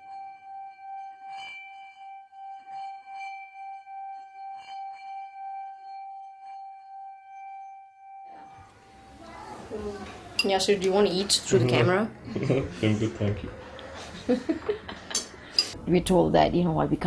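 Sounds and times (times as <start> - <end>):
singing bowl ringing: 0.0 - 9.2.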